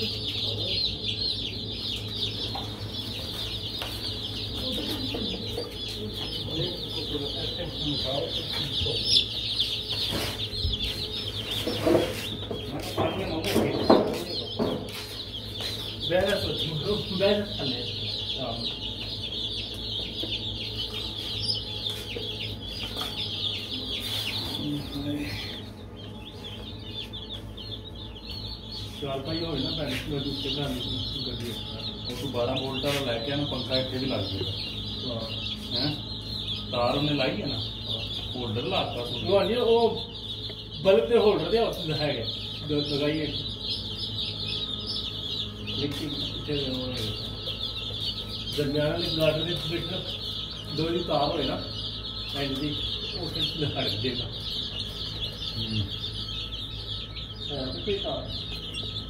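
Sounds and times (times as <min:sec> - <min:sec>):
baby chicks peeping: 0:00.0 - 0:59.0
steady low hum: 0:00.0 - 0:59.0.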